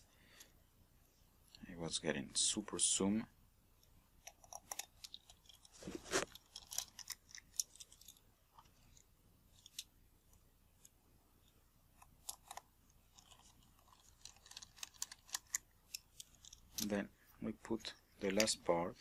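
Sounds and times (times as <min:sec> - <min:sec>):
lens being handled: 0:12.0 - 0:16.9.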